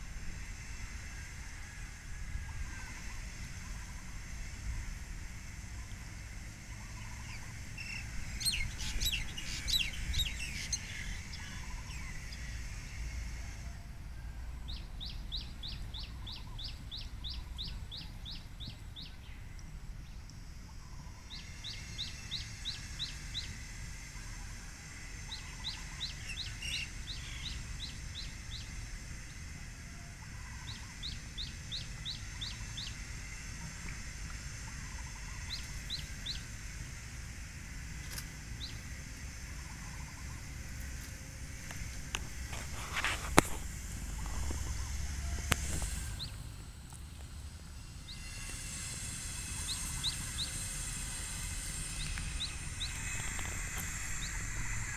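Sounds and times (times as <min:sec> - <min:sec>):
birds chirping: 0:05.8 - 0:12.5, 0:25.0 - 0:29.6, 0:30.2 - 0:37.2, 0:38.4 - 0:54.9.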